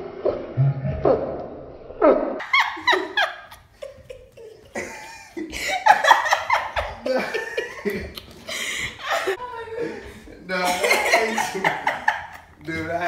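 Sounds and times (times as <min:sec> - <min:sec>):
people laughing hard: 0:02.4 - 0:13.0.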